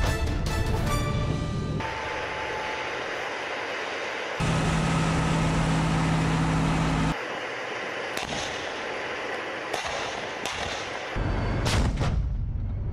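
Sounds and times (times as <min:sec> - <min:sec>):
tank engine humming: 0:00.8 - 0:11.7
tank guns firing: 0:08.2 - 0:08.9, 0:09.7 - 0:12.2.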